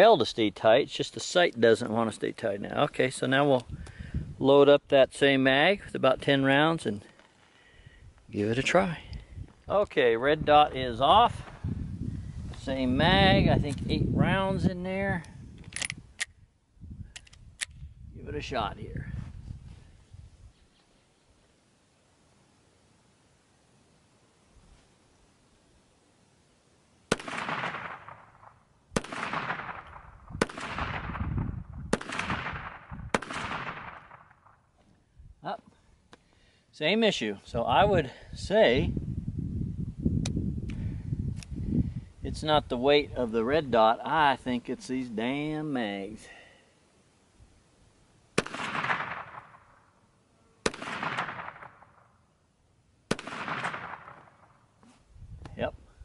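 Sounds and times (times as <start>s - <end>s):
pistol shots with echo: 27.1s - 31.3s, 31.9s - 34.6s, 48.4s - 49.9s, 50.6s - 52.1s, 53.1s - 54.6s.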